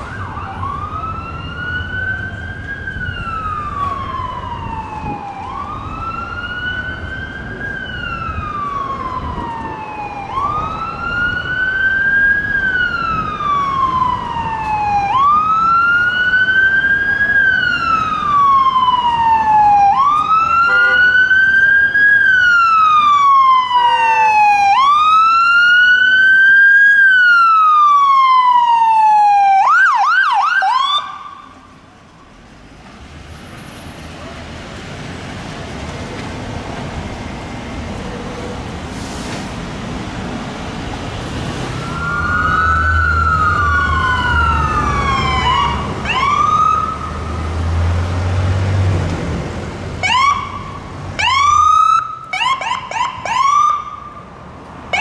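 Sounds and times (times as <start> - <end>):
ambulance siren wailing: 0.0 - 31.8, 41.4 - 48.0, 50.0 - 55.0.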